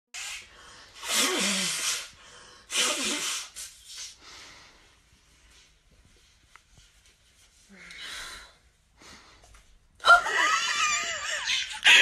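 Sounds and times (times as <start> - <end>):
person blowing nose: 0.2 - 4.2.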